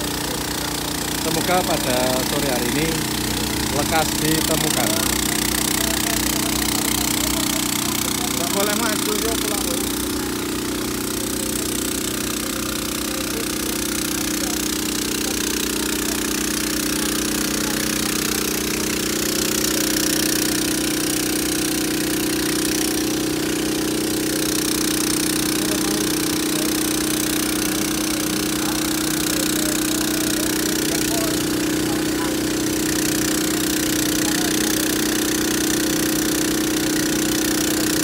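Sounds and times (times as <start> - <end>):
diesel truck engine running: 0.0 - 38.0
water hissing from a hose: 0.0 - 38.0.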